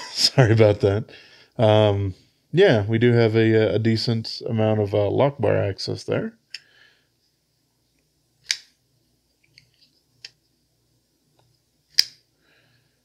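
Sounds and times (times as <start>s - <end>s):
folding knife lock clicks: 11.9s - 12.2s.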